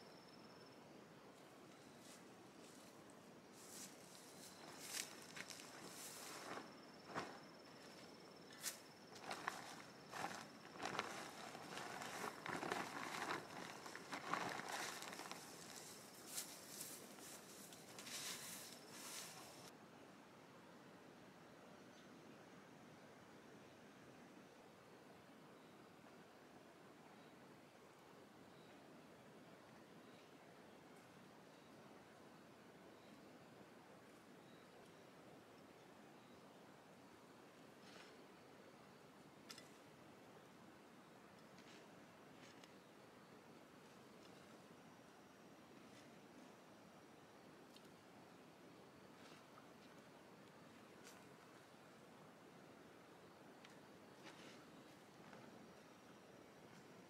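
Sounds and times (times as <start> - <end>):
faint background hiss: 0.0 - 57.0
rustling in dry leaves: 2.0 - 7.4, 8.6 - 19.7
sharp crackles: 8.6 - 19.7.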